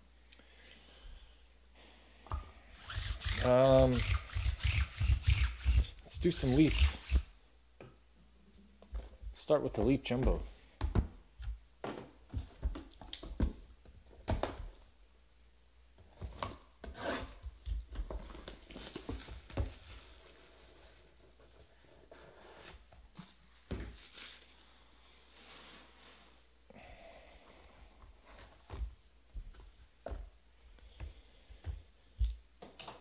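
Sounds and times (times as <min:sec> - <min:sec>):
plastic wrap tearing and crinkling: 0:18.3 - 0:20.9.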